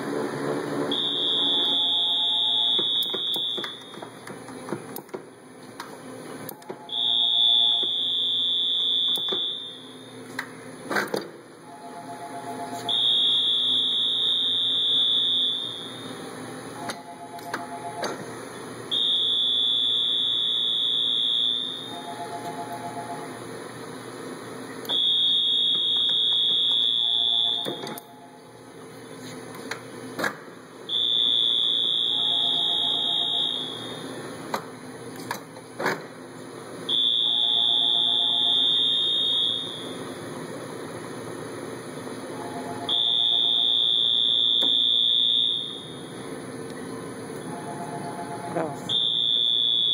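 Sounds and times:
lower two-tone beep: 0.9s - 3.8s, 6.8s - 9.8s, 30.9s - 33.8s
long high alarm beep: 0.9s - 4.0s, 6.6s - 10.1s, 11.7s - 16.1s, 18.9s - 23.3s, 24.9s - 28.4s, 30.9s - 34.0s, 36.9s - 40.0s, 42.4s - 46.0s, 47.5s - 49.9s.

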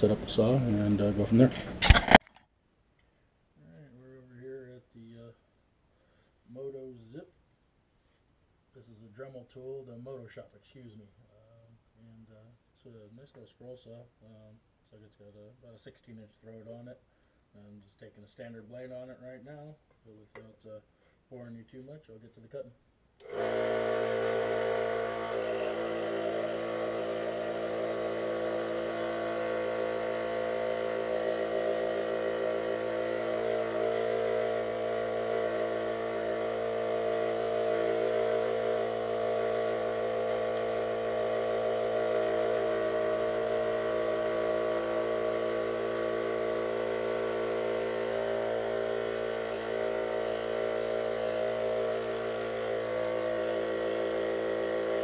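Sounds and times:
scroll saw cutting plywood: 23.2s - 55.0s.

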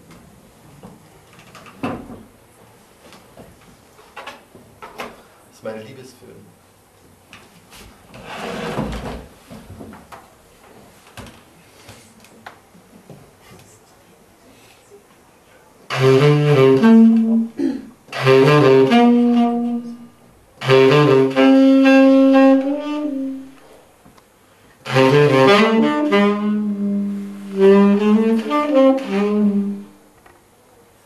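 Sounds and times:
saxophone playing slow melody: 15.9s - 23.7s, 24.8s - 30.1s.

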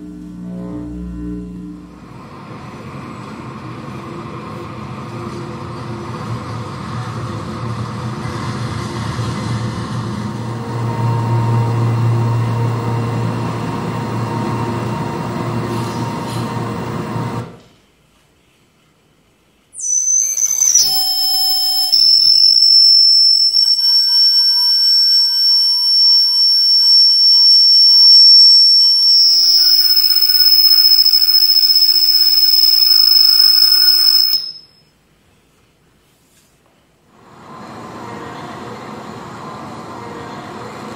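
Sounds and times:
loud high-pitched tone: 0.0s - 3.2s, 10.3s - 17.4s, 19.8s - 34.8s
dense low rumbling noise: 0.0s - 15.8s.

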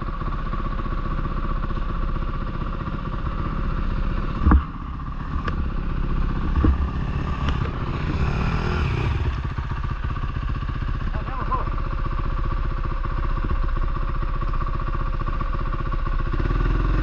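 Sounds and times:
dirt bike engine running: 0.0s - 17.0s
sharp knocks: 6.4s - 7.8s.

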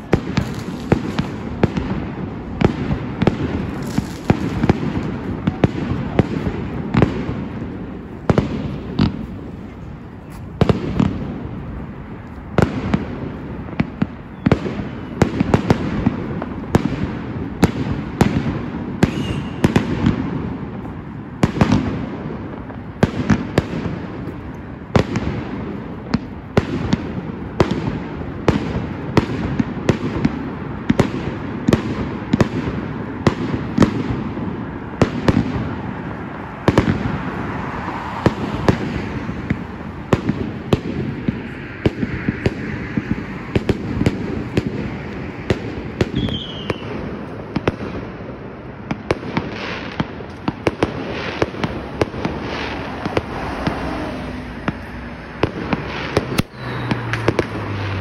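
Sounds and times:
fireworks bangs: 0.0s - 58.0s
fireworks crackle: 0.0s - 58.0s
falling firework whistle: 14.2s - 15.3s, 19.0s - 20.0s, 46.1s - 47.0s, 56.2s - 57.9s.

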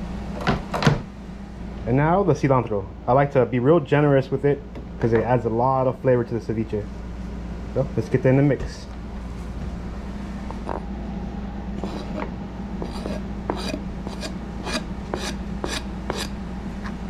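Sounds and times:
knife scraping cutting board: 11.8s - 17.0s.

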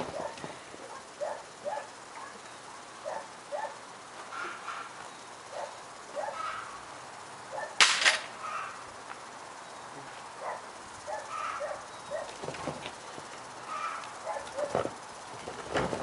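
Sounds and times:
dog barking: 0.1s - 2.4s, 3.0s - 3.8s, 5.5s - 6.6s, 7.5s - 7.8s, 10.4s - 12.4s, 13.8s - 14.8s.

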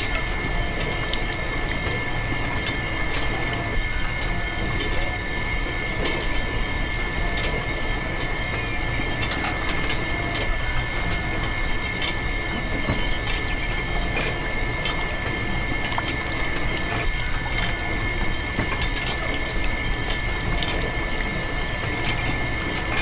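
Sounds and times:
liquid dripping into metal bucket: 0.0s - 3.6s, 14.2s - 23.0s.

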